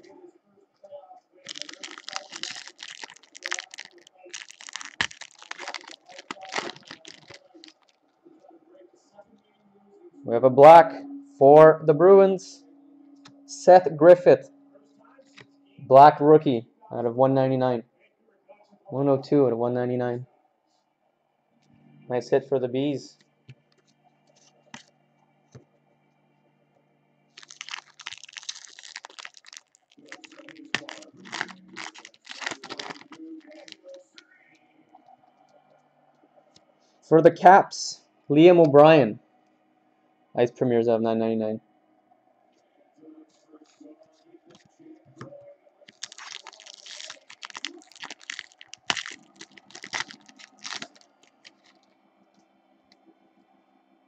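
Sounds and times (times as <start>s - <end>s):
wrapper crinkling: 1.4s - 8.0s, 27.4s - 34.3s, 45.9s - 51.8s
foil pack torn open: 1.5s - 7.9s, 27.4s - 34.1s, 45.9s - 51.8s.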